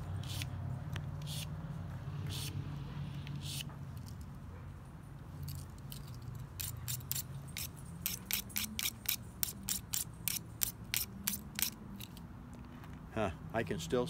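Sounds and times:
knife blade scraping sharpener: 0.1s - 0.5s, 1.2s - 1.5s, 2.2s - 2.6s, 3.3s - 4.1s, 5.4s - 12.2s.

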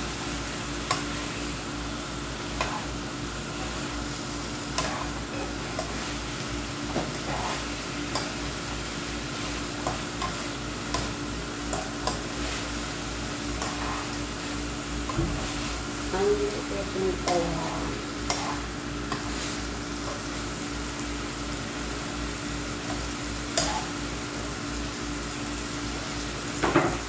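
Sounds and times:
food sizzling in a frying pan: 0.0s - 27.0s
metal spatula scraping a pan: 7.0s - 8.4s, 13.5s - 14.2s.

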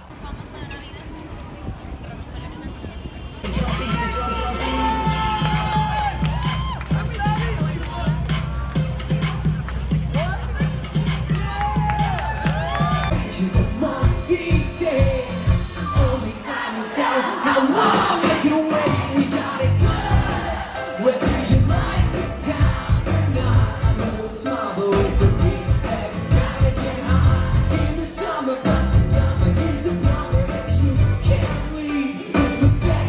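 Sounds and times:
live pop-rock band: 13.0s - 33.0s
lead singer singing: 13.1s - 33.0s.

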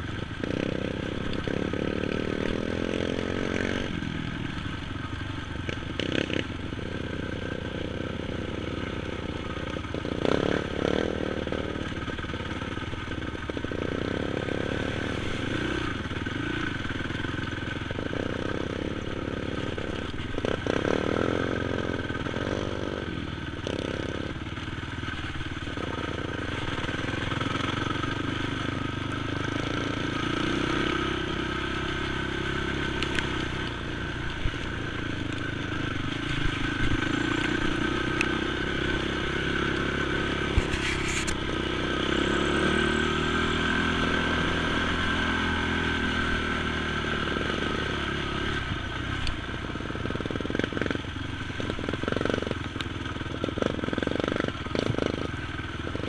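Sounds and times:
quad bike engine revving: 0.0s - 56.0s.

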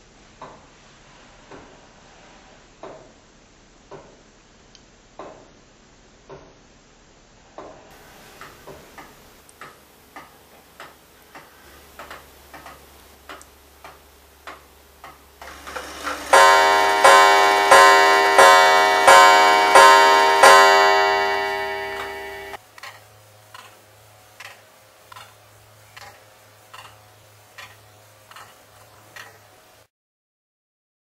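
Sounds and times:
clock ticking: 12.0s - 22.6s
clock gong striking: 15.4s - 22.6s.

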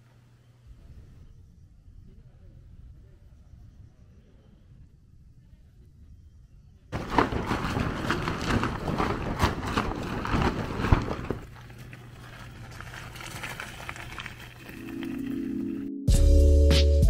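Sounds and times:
faint low hum: 0.0s - 15.8s
tent fabric rustling on gravel: 6.9s - 15.8s
music: 14.8s - 17.0s.

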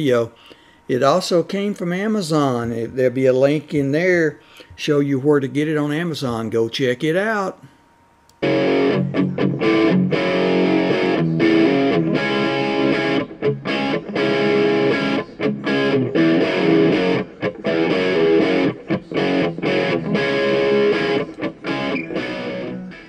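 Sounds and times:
distorted electric guitar chords: 8.3s - 23.0s.

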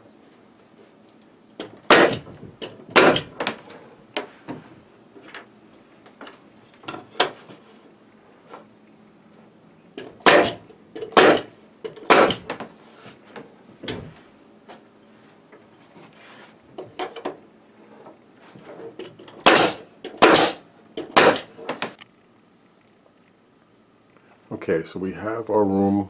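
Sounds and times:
nail gun shots: 1.6s - 3.4s, 10.0s - 12.5s, 19.4s - 21.5s.

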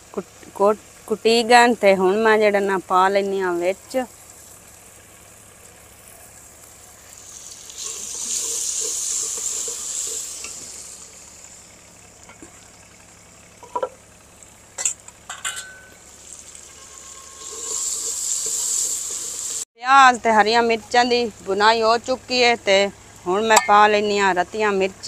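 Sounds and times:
masala sizzling in a pot: 0.0s - 19.7s
steel ladle clinking against pot: 14.8s - 16.0s, 23.5s - 23.9s.

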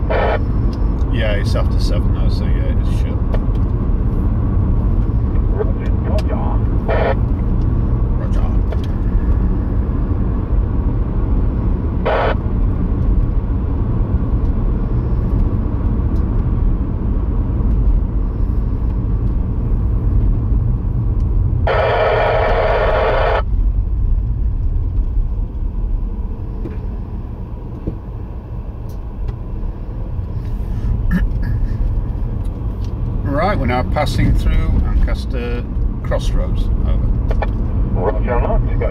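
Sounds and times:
radio static bursts: 0.0s - 0.5s, 6.8s - 7.2s, 21.7s - 23.5s
car road and engine rumble: 0.0s - 38.9s.

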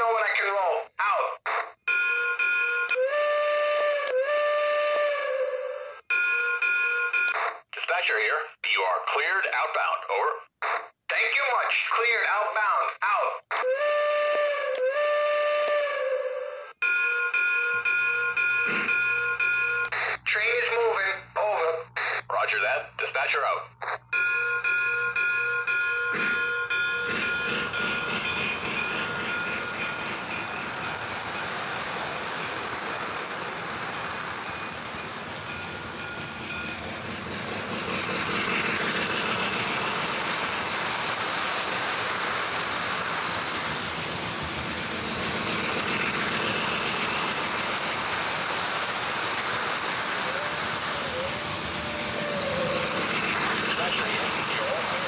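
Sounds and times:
train motor whirring: 23.8s - 55.0s
model train wheels rolling: 24.2s - 55.0s
bell-like ringing: 34.5s - 36.9s.

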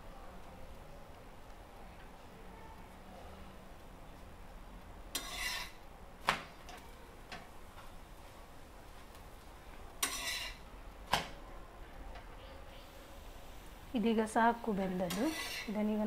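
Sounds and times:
spatula scraping iron pan: 5.1s - 5.8s, 10.0s - 10.6s, 15.1s - 15.8s
metal clack on pan: 10.0s - 11.3s.

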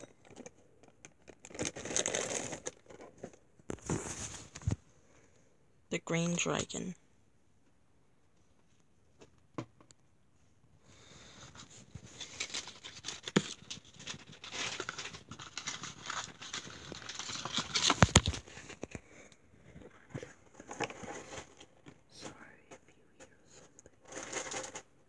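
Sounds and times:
packaging wrap crinkling: 0.2s - 4.7s, 11.5s - 19.0s.

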